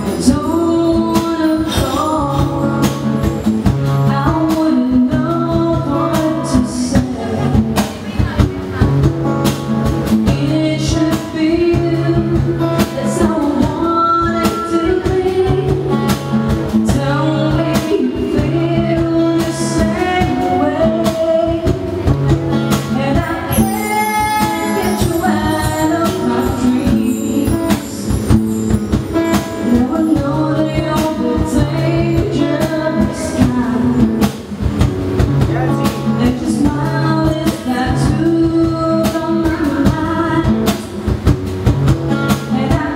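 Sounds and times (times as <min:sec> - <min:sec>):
woman singing: 0:00.0 - 0:09.0, 0:10.1 - 0:34.5, 0:36.0 - 0:41.0, 0:42.3 - 0:42.9
cajon beat: 0:00.0 - 0:42.9
strummed acoustic guitar: 0:00.0 - 0:42.9
high shimmer: 0:23.3 - 0:30.1.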